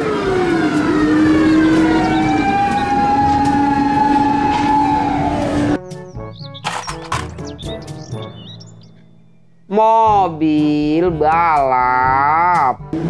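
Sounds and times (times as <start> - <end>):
fire truck siren wailing: 0.0 - 5.9
light background music: 0.0 - 13.0.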